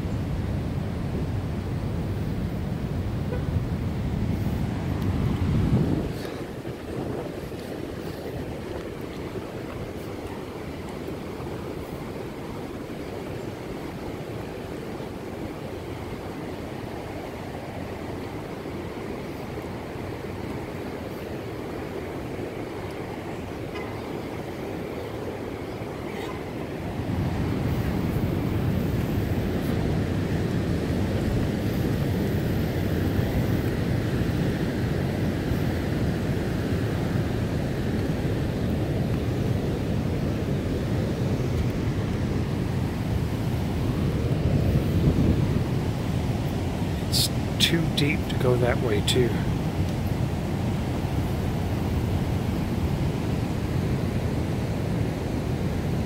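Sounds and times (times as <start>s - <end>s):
floodwater rushing over spillway: 0.3s - 56.0s.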